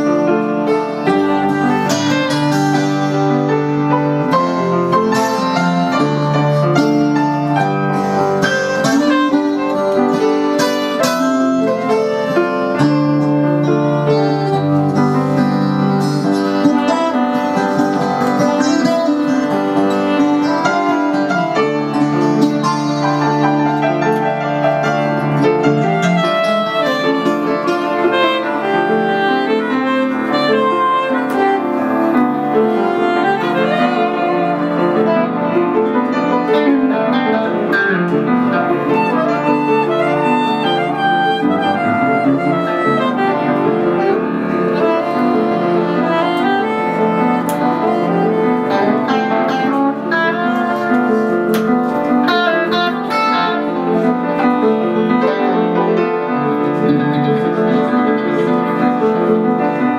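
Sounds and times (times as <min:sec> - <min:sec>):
soprano saxophone: 0:00.0 - 0:23.0, 0:23.7 - 0:54.4
electric guitar: 0:00.0 - 0:59.9
keyboard: 0:35.7 - 0:48.7.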